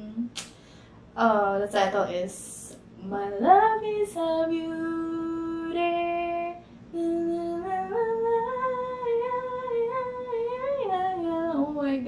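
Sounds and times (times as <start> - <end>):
woman humming: 0.0 - 0.4.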